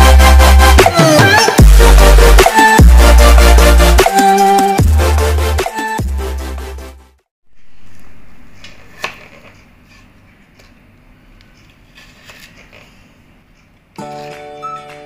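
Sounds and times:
music: 0:00.0 - 0:07.3, 0:14.0 - 0:15.0.

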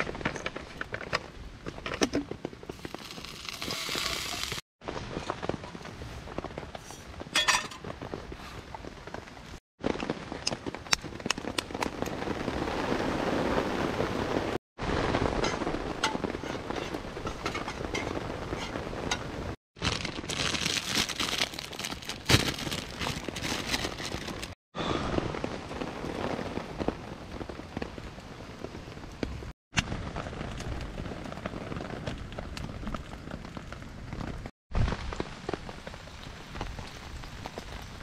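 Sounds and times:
rain pattering on tarp: 0:02.4 - 0:38.0
wood fire crackling: 0:02.4 - 0:38.0
egg sizzling: 0:02.7 - 0:04.6.

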